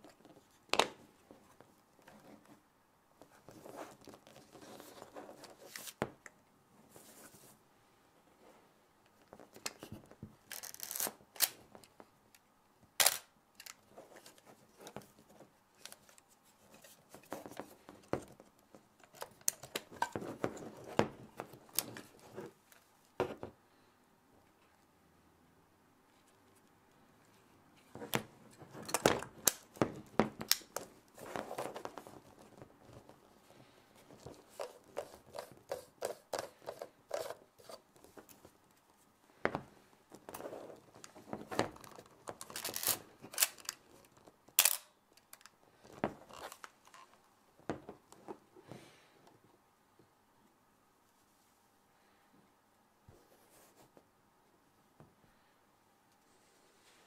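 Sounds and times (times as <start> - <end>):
camera mechanical clicks and rattles: 44.6 - 45.5.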